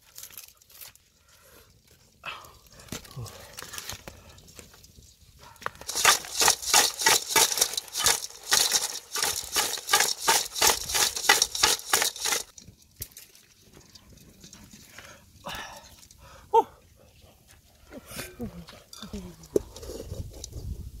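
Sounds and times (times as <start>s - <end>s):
crabs scratching in metal pot: 5.8s - 12.7s, 18.9s - 20.8s.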